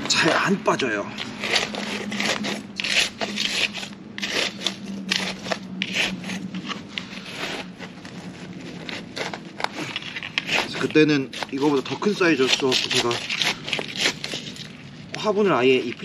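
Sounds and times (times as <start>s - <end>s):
plant scraping loose from pot: 0.0s - 16.0s.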